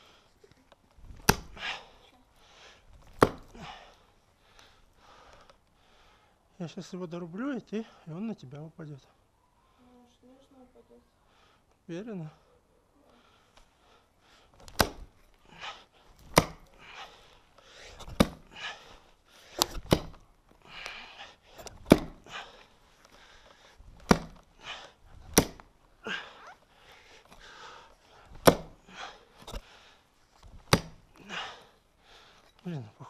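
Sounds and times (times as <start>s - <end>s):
axe chopping roots: 1.1s - 1.9s, 3.0s - 3.8s, 14.6s - 17.2s, 17.8s - 18.9s, 19.5s - 25.7s, 28.2s - 29.7s, 30.4s - 31.6s.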